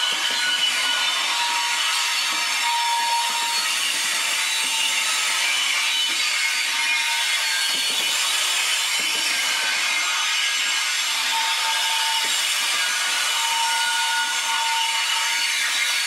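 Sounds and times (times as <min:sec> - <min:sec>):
high-pitched wheel squeals: 0:00.0 - 0:08.0.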